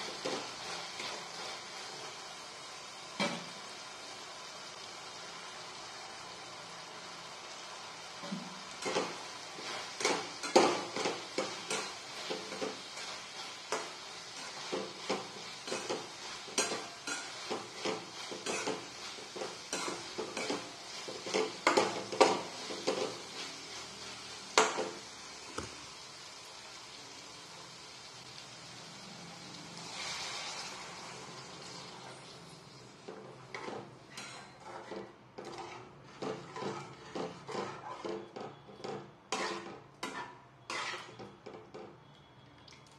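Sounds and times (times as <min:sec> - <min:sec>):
metal spatula scraping a pan: 0:00.0 - 0:02.3, 0:08.2 - 0:25.0, 0:31.6 - 0:42.2.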